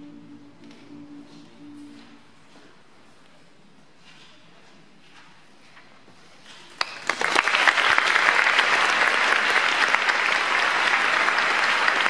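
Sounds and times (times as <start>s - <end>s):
audience applause: 6.8s - 12.0s.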